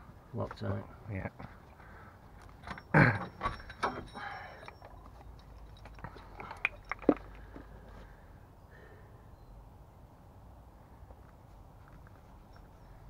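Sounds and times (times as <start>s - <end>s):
hand tools clicking and knocking: 2.4s - 7.8s.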